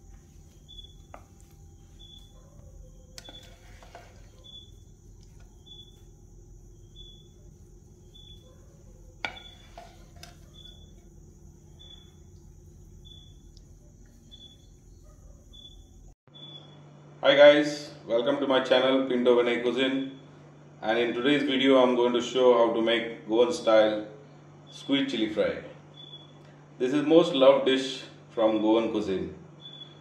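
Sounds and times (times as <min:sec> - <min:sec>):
low steady hum: 0:00.0 - 0:16.2
cricket chirping: 0:00.0 - 0:17.0, 0:25.8 - 0:26.6, 0:29.5 - 0:30.0
spatula scraping ceramic plate: 0:03.2 - 0:06.0, 0:09.2 - 0:11.0.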